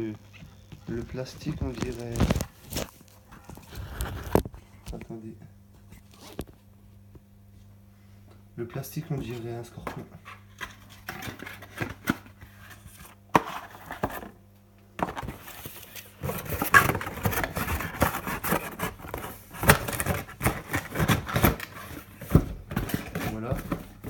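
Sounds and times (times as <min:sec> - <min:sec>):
plastic packaging crinkling: 0:00.9 - 0:04.5.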